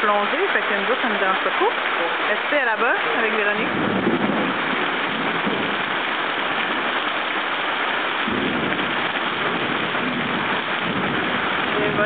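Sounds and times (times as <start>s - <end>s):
heavy rain on pool and patio: 0.0s - 12.0s
low rumble: 3.0s - 7.0s.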